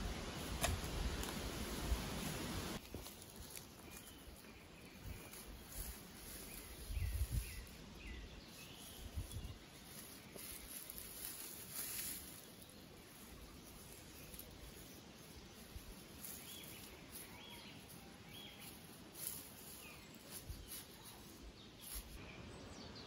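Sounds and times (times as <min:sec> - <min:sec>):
shovel digging into soil: 0:00.5 - 0:01.4
bird chirping: 0:03.6 - 0:23.0.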